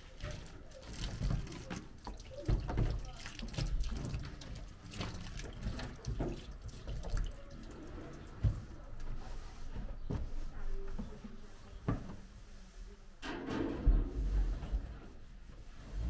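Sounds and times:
cloth wiping sink: 0:00.0 - 0:13.2, 0:14.1 - 0:16.0
tap water splashing into sink: 0:00.2 - 0:08.7.

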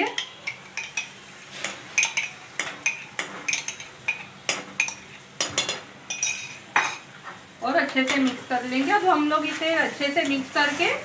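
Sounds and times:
metal spoon clinking on pan: 0:00.0 - 0:07.0.

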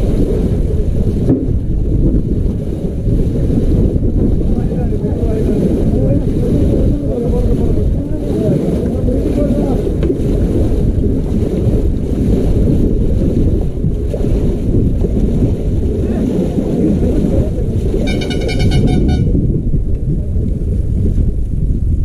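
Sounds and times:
paddles churning water: 0:00.0 - 0:21.8
wind rumble on microphone: 0:00.0 - 0:22.0
high trilling tone: 0:18.1 - 0:19.3.

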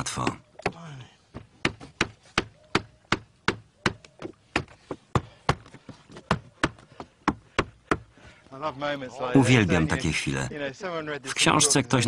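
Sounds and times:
hammer knocking on wooden block: 0:00.6 - 0:08.1.

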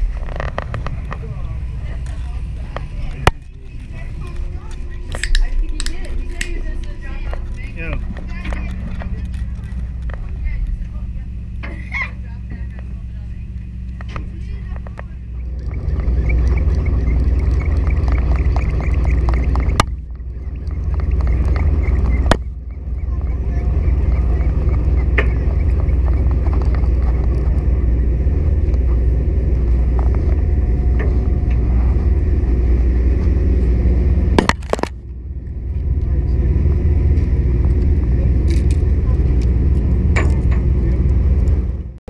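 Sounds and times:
boat engine rumbling: 0:00.0 - 0:42.0
rapid light ticking: 0:13.5 - 0:30.8.

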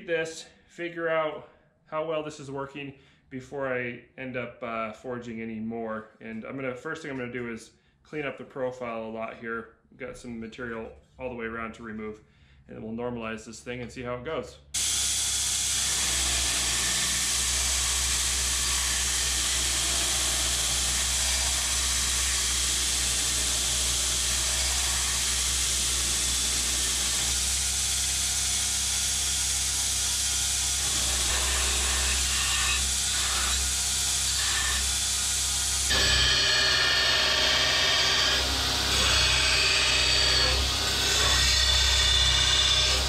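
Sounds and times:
belt grinder grinding steel: 0:14.8 - 0:43.0
motor low hum: 0:14.8 - 0:43.0.

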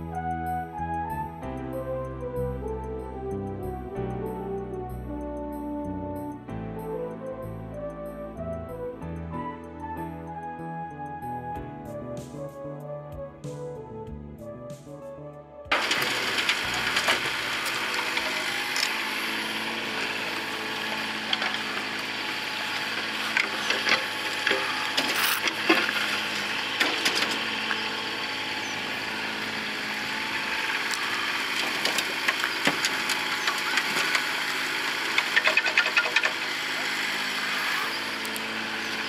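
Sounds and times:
excavator engine running: 0:15.7 - 0:39.0.

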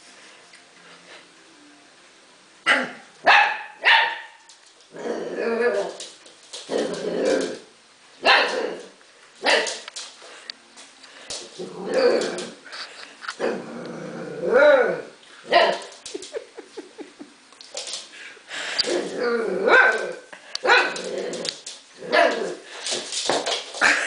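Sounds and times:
puppy play-barking: 0:02.7 - 0:04.5, 0:08.2 - 0:10.0, 0:14.5 - 0:15.9, 0:18.9 - 0:22.6.

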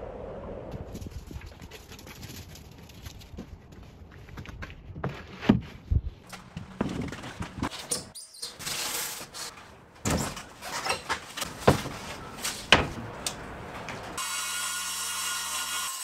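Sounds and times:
board sliding and scraping: 0:05.0 - 0:08.0.

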